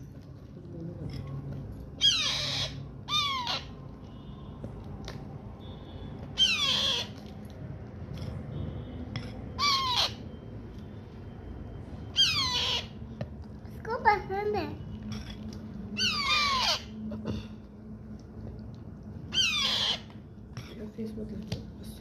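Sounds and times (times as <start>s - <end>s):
parrot chick squawking: 2.0s - 3.8s, 6.4s - 7.3s, 9.6s - 10.3s, 12.1s - 13.0s, 16.0s - 17.0s, 19.3s - 20.2s.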